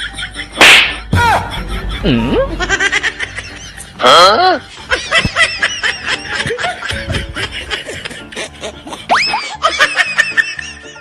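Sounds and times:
background music: 0:00.0 - 0:11.0
high-pitched snickering laughter: 0:04.8 - 0:11.0.

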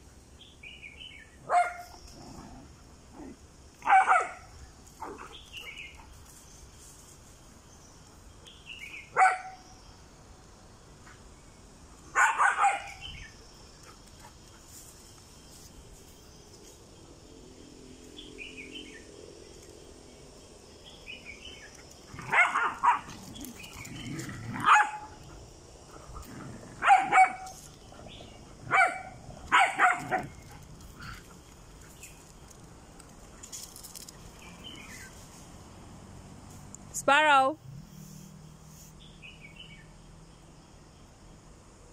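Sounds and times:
dogs barking: 0:01.4 - 0:01.9, 0:03.8 - 0:05.3, 0:09.1 - 0:09.6, 0:12.2 - 0:13.1, 0:22.1 - 0:23.4, 0:24.0 - 0:25.2, 0:26.2 - 0:30.6.

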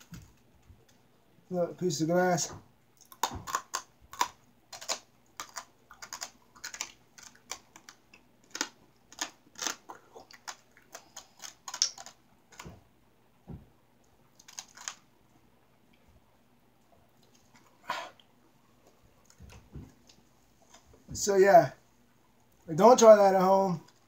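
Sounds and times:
glass crunching between teeth: 0:03.0 - 0:12.7, 0:14.4 - 0:15.0.

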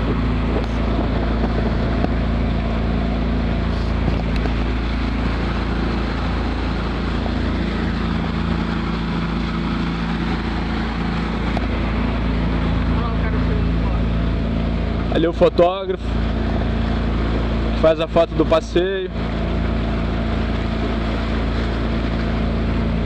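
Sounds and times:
wind buffeting microphone: 0:00.0 - 0:12.7
outboard motor droning: 0:00.0 - 0:23.0
water rushing past hull: 0:00.0 - 0:23.0.

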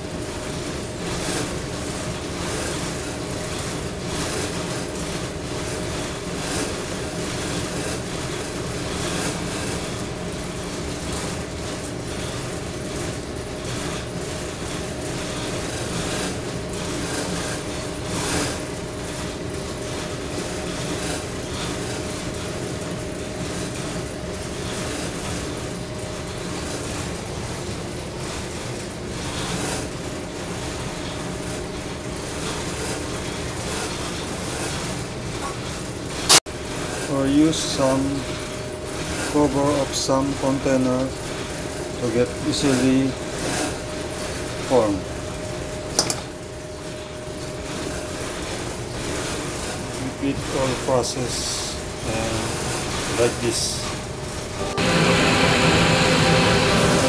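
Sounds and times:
ship machinery drone: 0:51.6 - 0:57.0.

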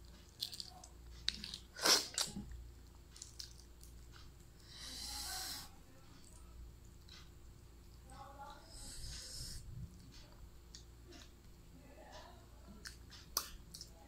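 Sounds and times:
eggshell crackling: 0:00.0 - 0:04.5
crunching bites and chewing: 0:00.3 - 0:02.5, 0:03.1 - 0:04.0.

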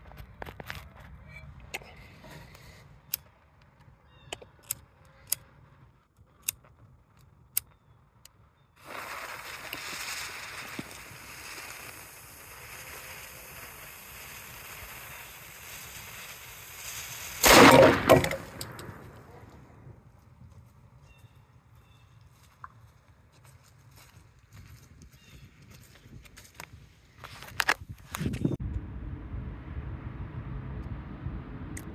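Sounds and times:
cannon blast: 0:17.4 - 0:19.3.

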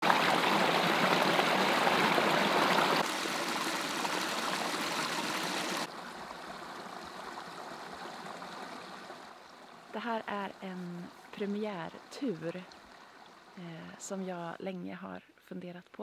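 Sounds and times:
brook rushing over rocks: 0:00.0 - 0:09.3.

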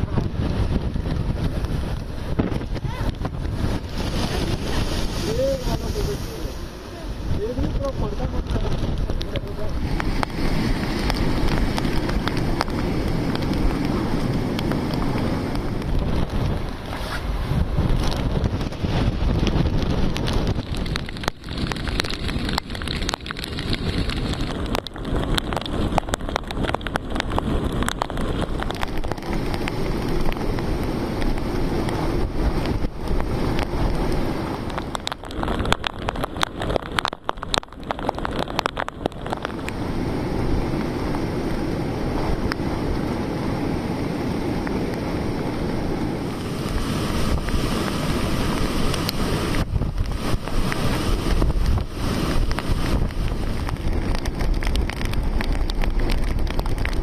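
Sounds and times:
breaking surf: 0:00.0 - 0:57.0
rain: 0:00.0 - 0:57.0
wind buffeting microphone: 0:00.0 - 0:57.0
sharp crackles and knocks on mic: 0:00.1 - 0:03.9, 0:08.4 - 0:17.0, 0:17.6 - 0:31.5, 0:32.6 - 0:39.8, 0:48.8 - 0:57.0.

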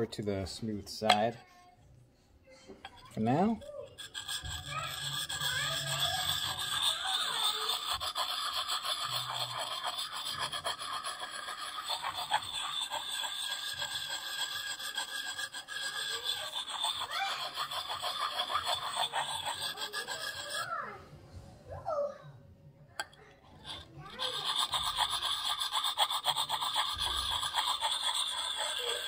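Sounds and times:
sharpening stone scraping steel: 0:02.8 - 0:20.8, 0:23.0 - 0:29.0.

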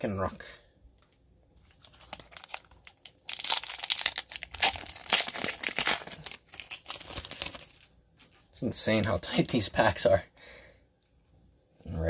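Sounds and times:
foil wrapper tearing and crinkling: 0:01.7 - 0:07.9.

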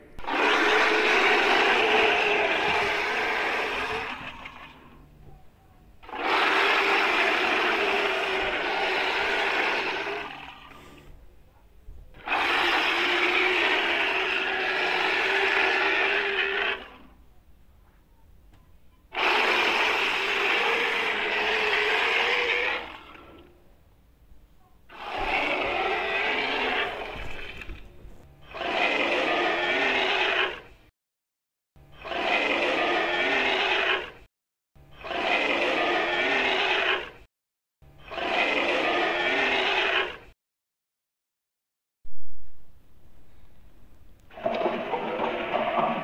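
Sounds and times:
dinosaur roars: 0:00.2 - 0:05.0, 0:06.0 - 0:10.9, 0:12.2 - 0:17.1, 0:19.1 - 0:23.5, 0:24.9 - 0:27.8, 0:28.4 - 0:30.7, 0:32.0 - 0:34.2, 0:35.0 - 0:37.2, 0:38.0 - 0:40.3, 0:44.3 - 0:46.0.

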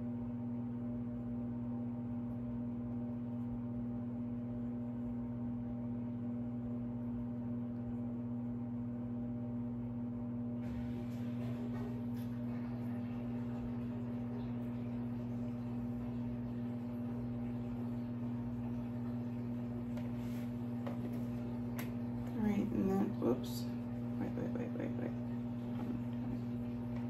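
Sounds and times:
electrical hum: 0:00.0 - 0:27.0.

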